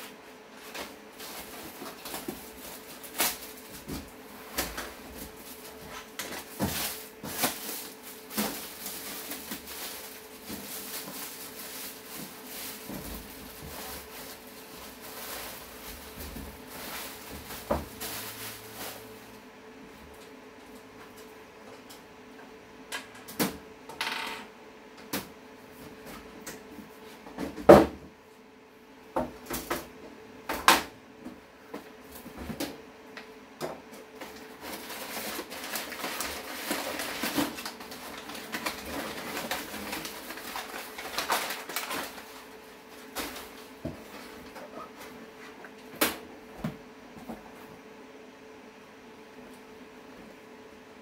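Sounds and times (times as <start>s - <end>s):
packing paper crinkling: 0.6s - 19.3s, 34.2s - 44.6s.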